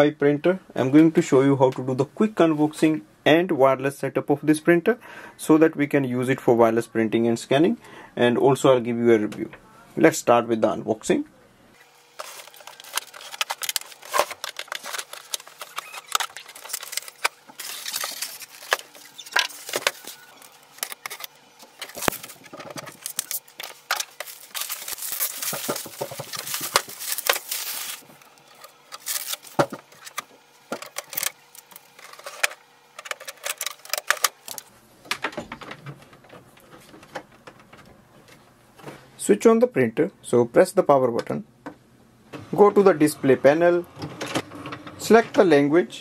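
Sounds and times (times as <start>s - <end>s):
plastic wrap and cardboard rustling: 11.8s - 34.7s.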